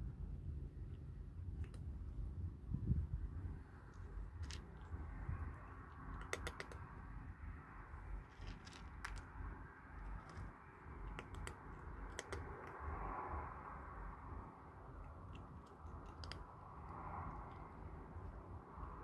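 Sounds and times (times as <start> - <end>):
low background rumble: 0.0 - 19.0
kittens crunching dry kibble: 1.4 - 2.2, 3.7 - 7.1, 7.9 - 12.9, 14.9 - 18.4.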